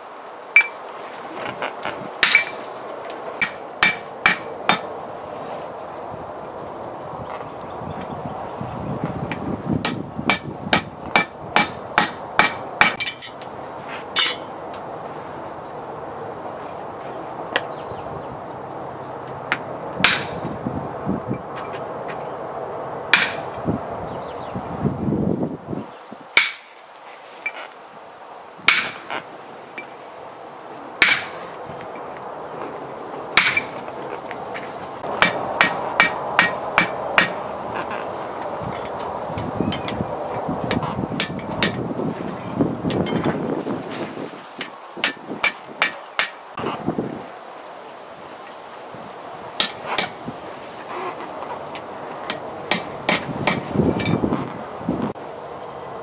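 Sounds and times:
hammer striking metal on anvil: 0:03.4 - 0:04.9, 0:20.0 - 0:20.4, 0:23.2 - 0:23.5, 0:26.4 - 0:26.7, 0:31.0 - 0:31.3, 0:33.4 - 0:33.7.

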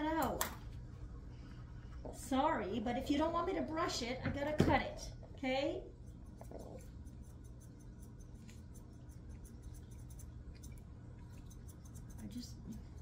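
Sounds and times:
scissors snipping fur: 0:06.0 - 0:13.0.

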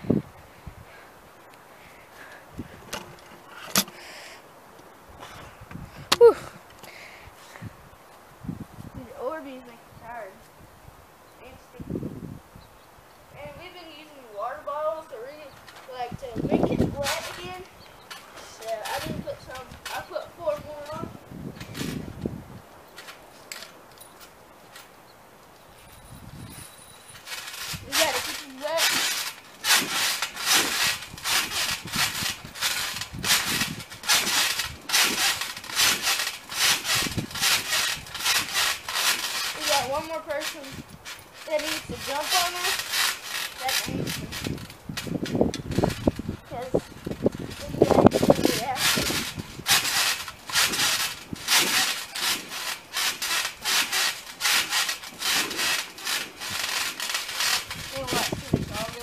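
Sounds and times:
feet bouncing on trampoline: 0:16.2 - 0:17.6, 0:18.4 - 0:22.4, 0:27.3 - 0:59.0.

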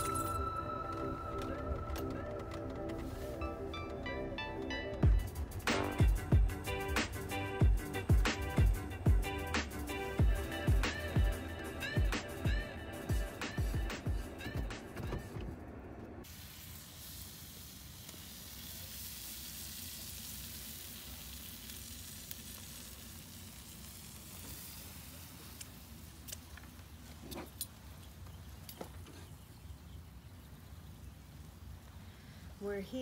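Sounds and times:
meat sizzling on grill: 0:16.2 - 0:26.5.

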